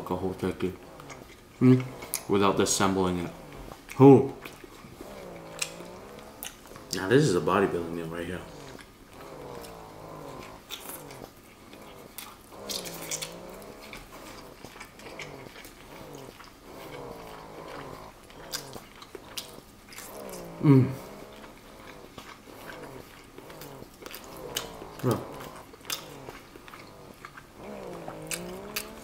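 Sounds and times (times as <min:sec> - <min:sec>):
man chewing with mouth smacks: 0:00.0 - 0:29.0
man humming with closed mouth: 0:20.2 - 0:21.3.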